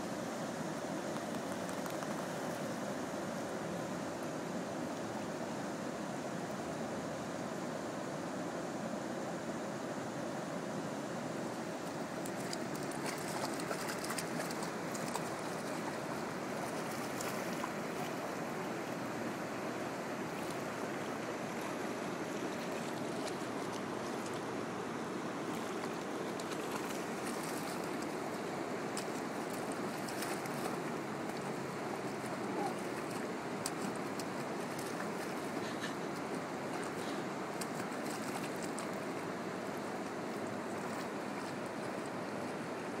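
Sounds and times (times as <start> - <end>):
river water rushing over rocks: 0.0 - 43.0
dog splashing in water: 12.3 - 15.8.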